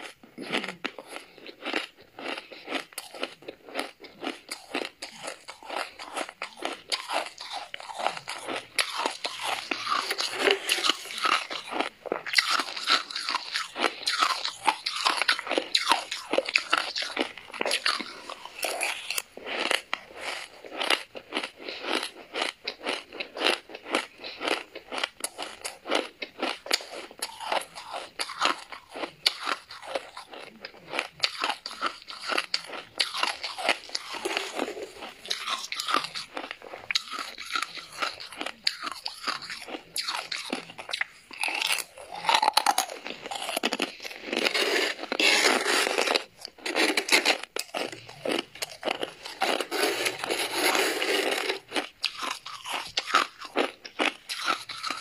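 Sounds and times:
chewing crunchy frost: 0.0 - 55.0
metal spoon scraping frost: 5.4 - 20.5, 31.6 - 38.3, 43.0 - 52.9.

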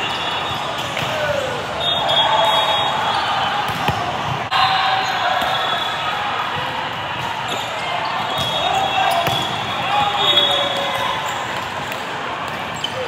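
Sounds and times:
sharp volleyball strikes: 3.6 - 4.6, 5.3 - 11.2.

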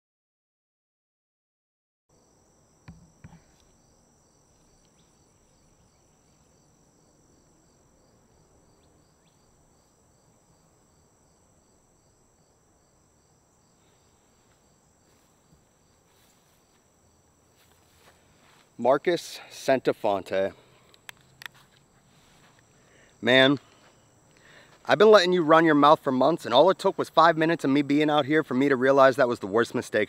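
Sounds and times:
insect chirping: 2.1 - 30.0
insect trill: 2.1 - 30.0
outdoor background noise: 2.1 - 30.0.

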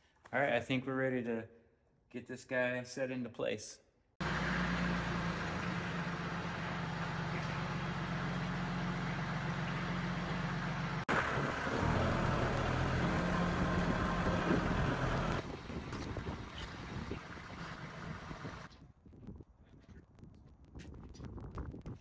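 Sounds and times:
tractor engine running: 4.2 - 18.7.

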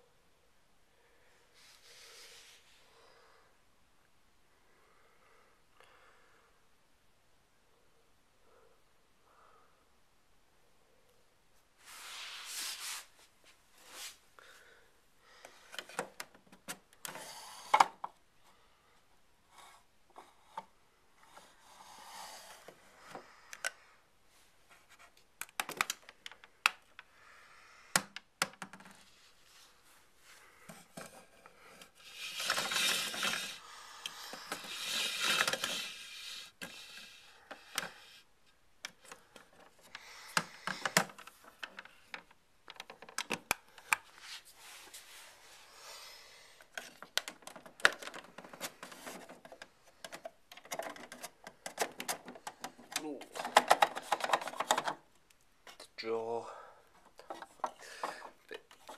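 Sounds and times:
plastic scraping and rubbing: 30.7 - 33.6, 34.3 - 38.0, 46.7 - 55.0
plastic toy parts clicking: 49.4 - 55.0.

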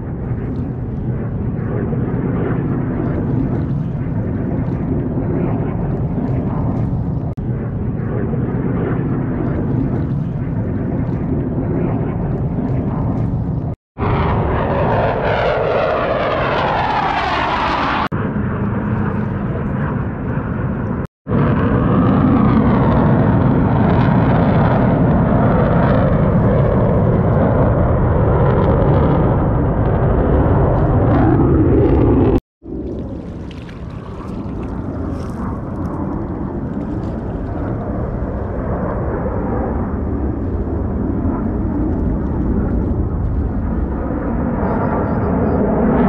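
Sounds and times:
jet passing whoosh: 0.0 - 18.4
jet engine roar: 0.0 - 46.0.

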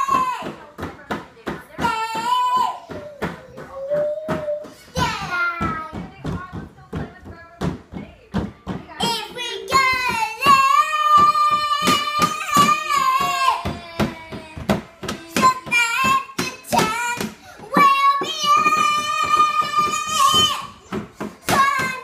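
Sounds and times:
beat of sharp knocks: 0.0 - 22.0
child singing high notes: 9.2 - 20.8.

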